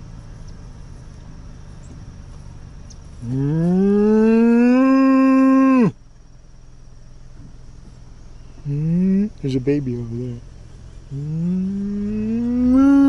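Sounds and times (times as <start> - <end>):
bull mooing: 3.2 - 6.0, 11.1 - 13.0.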